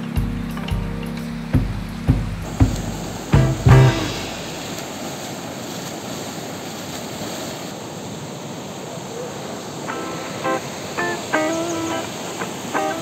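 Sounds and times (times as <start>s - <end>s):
background music notes: 0.0s - 4.9s, 9.9s - 13.0s
river rushing over rocks: 2.4s - 13.0s.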